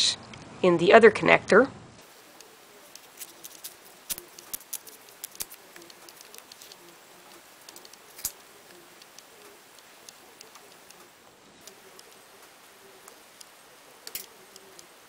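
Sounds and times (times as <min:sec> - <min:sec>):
blade snipping cable jacket: 0:02.9 - 0:06.9, 0:07.7 - 0:08.4, 0:14.1 - 0:14.7.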